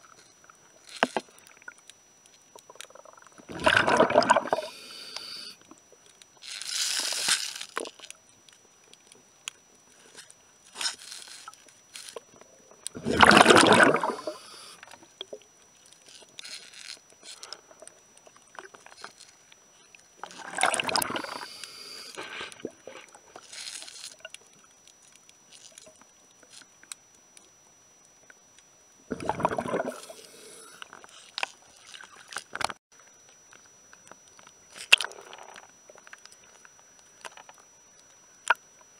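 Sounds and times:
faint high whine: 0.0 - 38.9
water bubbling and sloshing: 2.5 - 4.8, 11.5 - 15.5, 20.0 - 21.5, 29.1 - 30.4
faint scrapes and ticks: 4.5 - 13.0, 13.9 - 28.7, 29.9 - 38.9.

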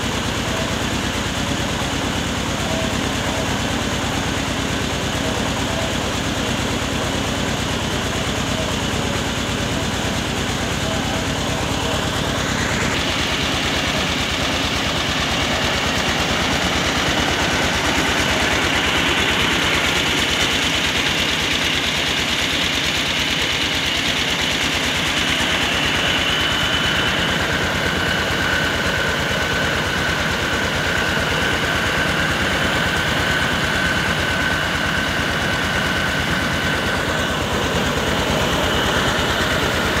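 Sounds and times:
rice mill engine din: 0.0 - 40.0
high whine: 7.9 - 40.0.

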